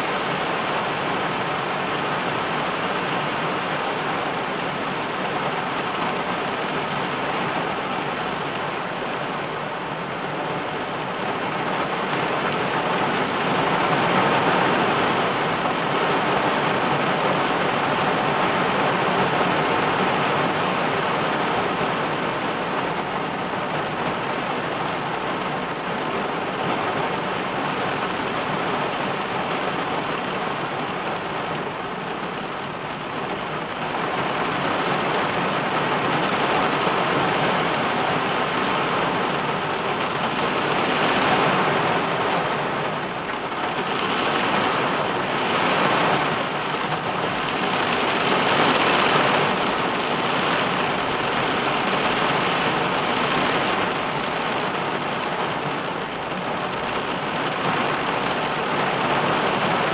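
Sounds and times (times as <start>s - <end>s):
heavy rain on car roof: 0.0s - 59.9s.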